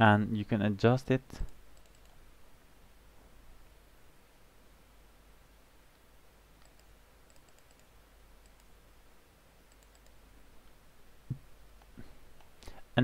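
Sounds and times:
low steady hum: 0:00.0 - 0:13.0
computer mouse clicks: 0:01.4 - 0:02.2, 0:06.6 - 0:08.8, 0:09.7 - 0:10.2.

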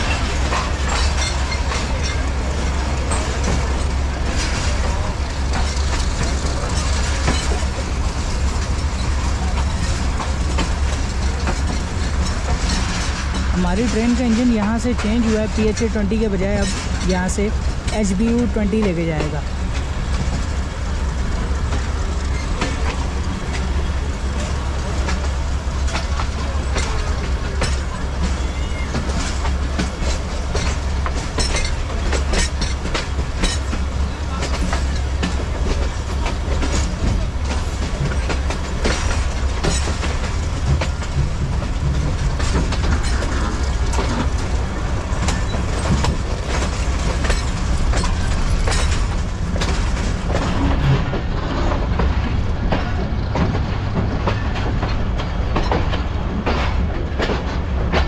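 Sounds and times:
train rumbling on rails: 0:00.0 - 0:58.0
wheels clicking and clattering: 0:00.0 - 0:58.0.

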